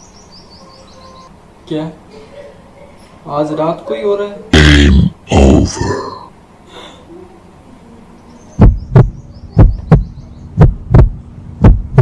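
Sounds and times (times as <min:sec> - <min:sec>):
heartbeat double thumps: 0:08.6 - 0:12.0.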